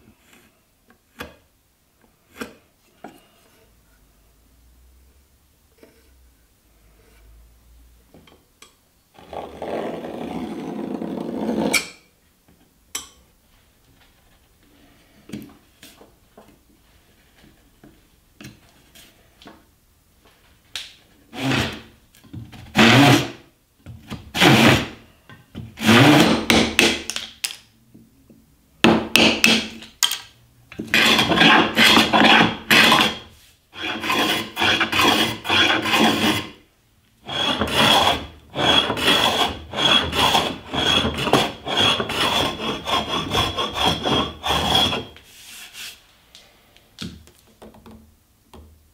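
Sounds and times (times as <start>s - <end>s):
hand saw rasping through wood: 21.3s - 21.9s, 22.7s - 23.4s, 24.4s - 25.0s, 25.8s - 27.0s, 30.9s - 36.6s, 37.2s - 45.2s.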